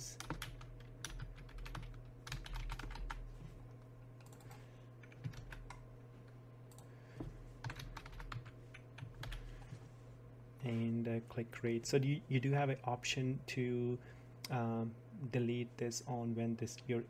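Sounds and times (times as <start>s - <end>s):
faint low hum: 0.0s - 17.0s
computer keyboard typing: 0.2s - 3.3s, 4.2s - 5.8s, 7.6s - 9.4s.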